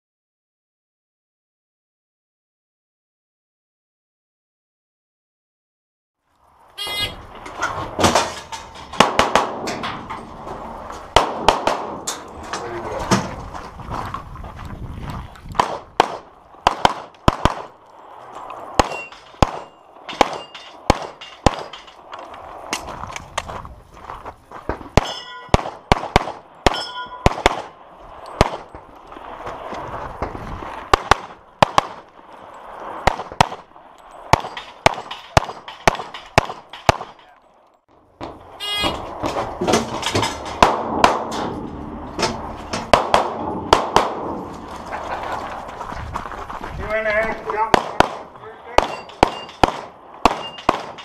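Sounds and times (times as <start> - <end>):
steel targets ringing: 6.8 - 7.2, 18.8 - 22.1, 25.0 - 25.6, 26.6 - 27.4, 38.6 - 39.1, 48.8 - 49.7, 50.3 - 51.0
pistol shots: 8.9 - 9.8, 11.1 - 12.3, 15.5 - 17.8, 18.8 - 22.0, 24.7 - 28.8, 30.9 - 32.1, 33.0 - 37.3, 40.6 - 41.6, 42.2 - 44.5, 47.5 - 51.0.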